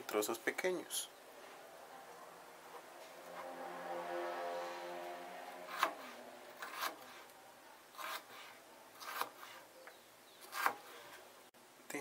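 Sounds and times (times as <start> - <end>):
knife slicing onion on plastic board: 8.0 - 9.7, 10.4 - 11.1.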